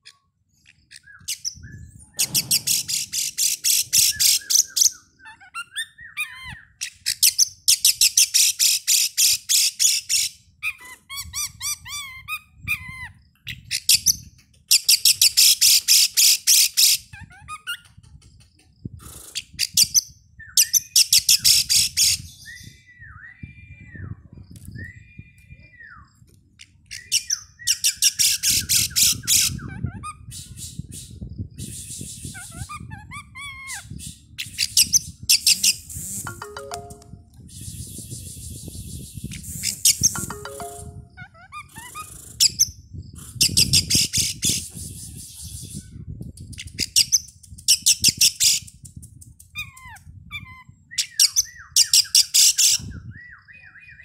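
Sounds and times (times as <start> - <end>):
bird whistles: 1.1 - 6.3
bird singing chattering notes: 35.4 - 37.2, 39.4 - 41.2.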